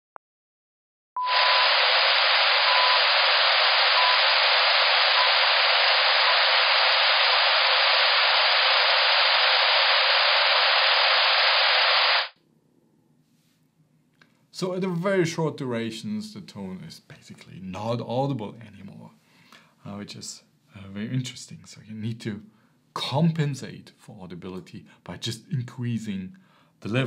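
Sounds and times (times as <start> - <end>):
loud hissing masking noise: 1.2 - 12.4.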